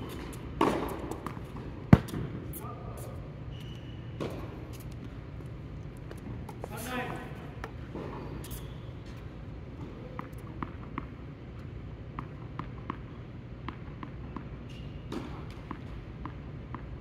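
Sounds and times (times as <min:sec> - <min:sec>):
steady low hum: 0:00.0 - 0:17.0
sharp tennis ball strikes: 0:00.2 - 0:02.5.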